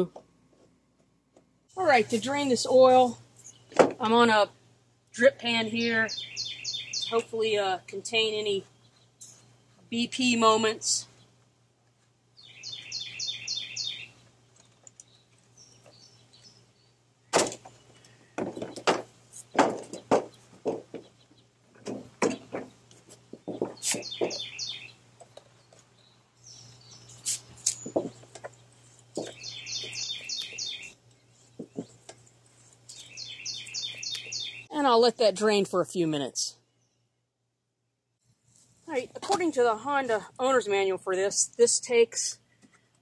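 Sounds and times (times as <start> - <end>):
songbird singing high notes: 5.6 - 7.6, 12.4 - 14.2, 23.8 - 25.0, 29.4 - 31.0, 32.9 - 34.9.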